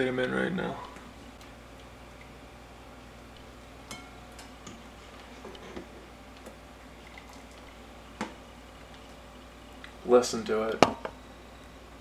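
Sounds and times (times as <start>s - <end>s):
metal spoon tapping pot: 3.9s - 4.8s.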